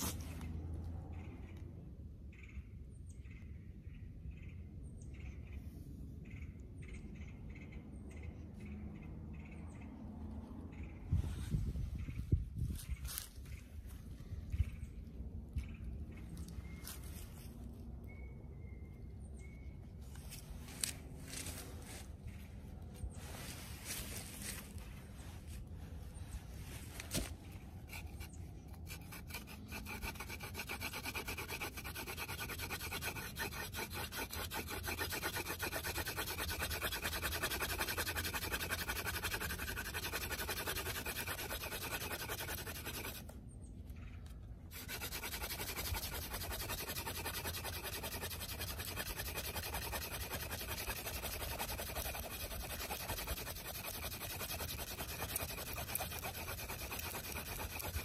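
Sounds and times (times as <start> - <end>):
wood rubbing on wood: 27.1 - 43.3, 44.7 - 58.0.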